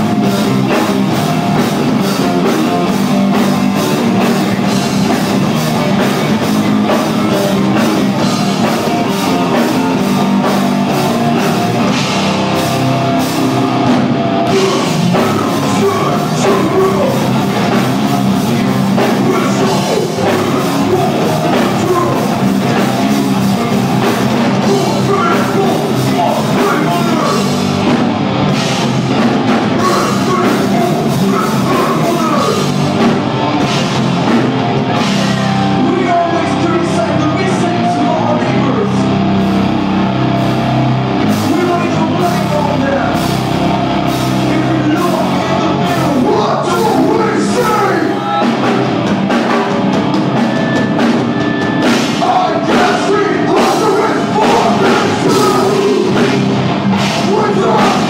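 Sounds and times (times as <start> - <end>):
drum kit with cymbals: 0.0 - 38.1, 38.7 - 58.0
electric guitar: 0.0 - 58.0
person singing: 13.5 - 28.0, 29.7 - 33.9, 44.4 - 48.9, 52.0 - 58.0.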